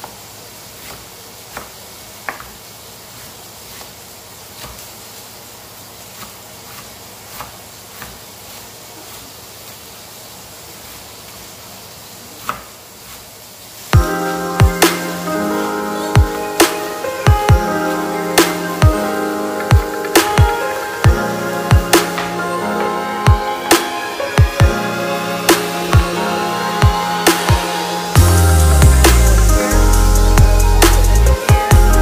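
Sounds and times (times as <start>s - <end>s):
low hiss: 0.0s - 32.0s
knife tapping on cutting board: 2.3s - 2.5s
electronic music with beat: 13.9s - 32.0s.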